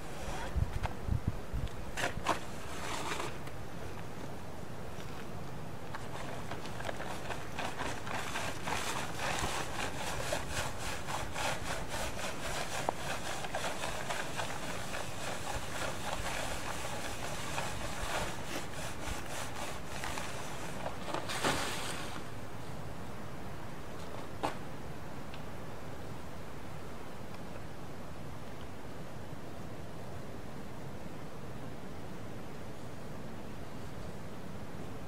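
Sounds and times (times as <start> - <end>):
plastic tarp crinkling: 19.8 - 22.3.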